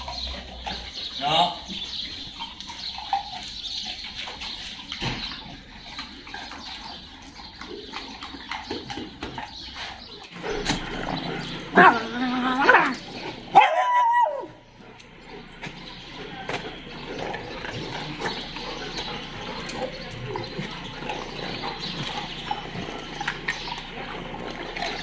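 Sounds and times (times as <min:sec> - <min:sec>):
dog whining: 0:11.0 - 0:22.8.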